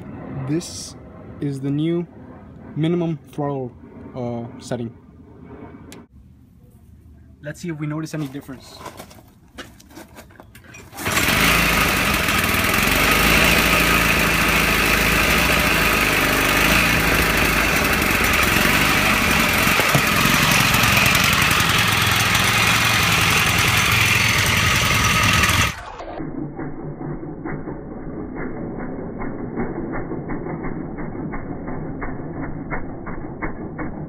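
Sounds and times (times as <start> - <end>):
small engine idling: 10.8 - 34.0.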